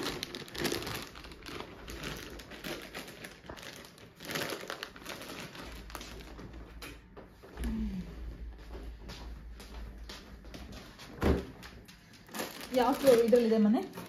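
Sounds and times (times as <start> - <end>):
plastic bag crinkling: 0.0 - 6.8, 12.0 - 14.0.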